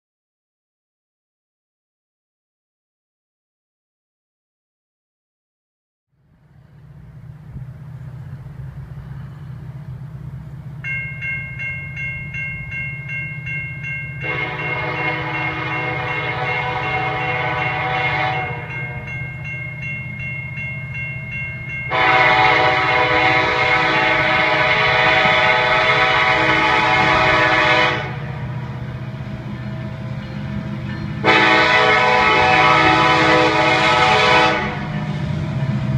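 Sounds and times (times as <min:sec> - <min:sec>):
locomotive rumble: 0:06.2 - 0:35.9
crossing signal bell ringing: 0:10.6 - 0:25.1, 0:28.7 - 0:33.2
train air horn blasts: 0:14.2 - 0:19.1, 0:21.9 - 0:28.5, 0:31.2 - 0:35.3.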